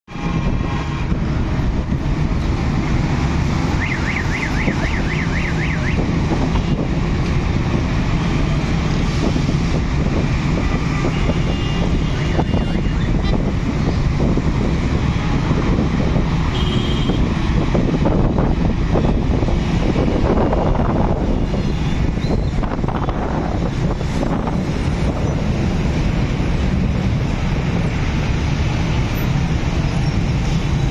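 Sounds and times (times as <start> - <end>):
road traffic rumble: 0.0 - 30.9
warbling electronic siren tone: 3.8 - 6.0.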